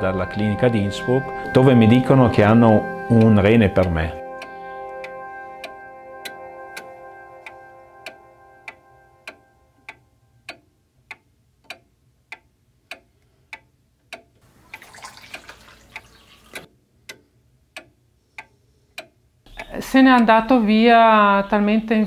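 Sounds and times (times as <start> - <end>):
sustained music: 0.0 - 10.0
clock ticking: 0.0 - 22.0
water pouring: 14.5 - 16.7.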